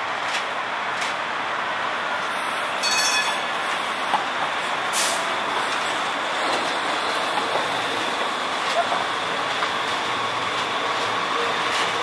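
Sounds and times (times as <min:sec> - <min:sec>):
train rolling rumble: 0:00.0 - 0:12.0.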